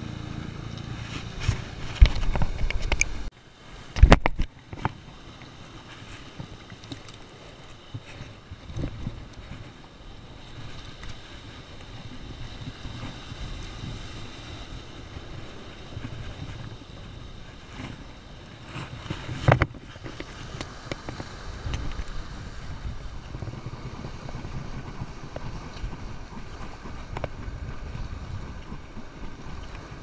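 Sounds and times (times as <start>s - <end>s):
strong wind buffeting microphone: 7.3s - 30.0s.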